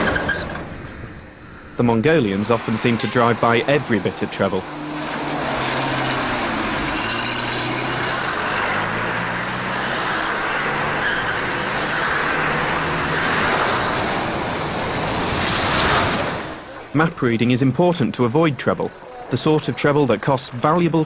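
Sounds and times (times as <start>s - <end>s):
vehicle engines running: 0.0s - 21.0s
water splashing: 2.4s - 16.8s.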